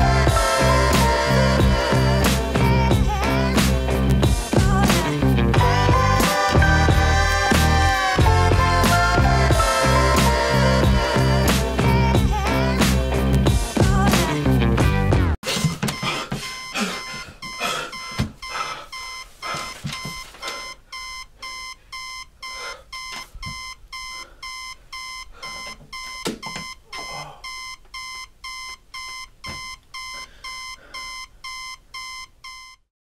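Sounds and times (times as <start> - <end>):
electronic alarm beeping: 15.6 - 32.9.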